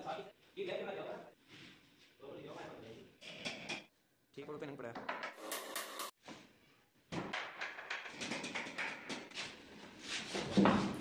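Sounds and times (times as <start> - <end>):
wooden knocks and clatter: 7.1 - 9.4.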